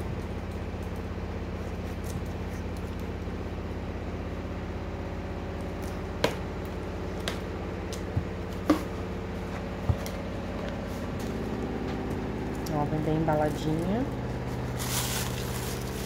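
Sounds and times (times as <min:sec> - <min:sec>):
low hum: 0:00.0 - 0:16.0.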